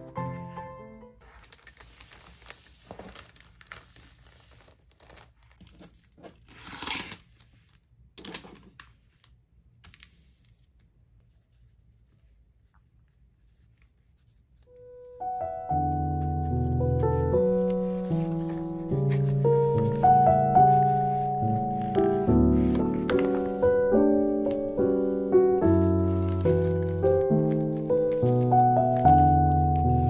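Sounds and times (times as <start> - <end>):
background music: 0.0 - 1.2, 14.8 - 30.0
cellophane rustling and crinkling: 1.2 - 10.6, 17.0 - 30.0.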